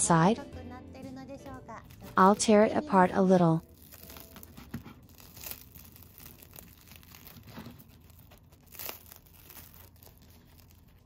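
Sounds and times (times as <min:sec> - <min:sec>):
toast tearing and crackling: 0:03.6 - 0:11.0.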